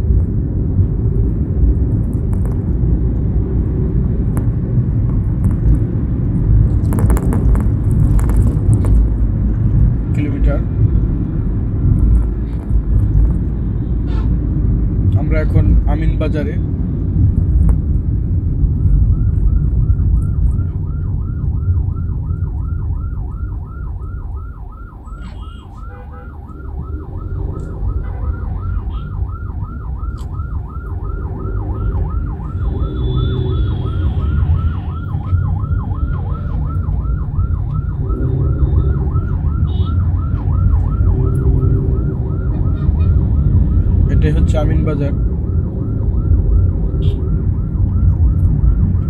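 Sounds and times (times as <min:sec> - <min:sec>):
car driving rumble: 0:00.0 - 0:49.0
siren on fast yelp: 0:20.2 - 0:49.0.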